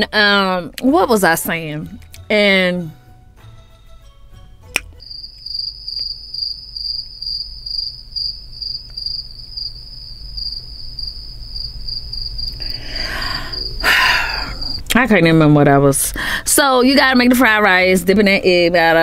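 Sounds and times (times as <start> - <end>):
sharp click: 4.7 - 5.0
cricket chirping: 5.0 - 14.9.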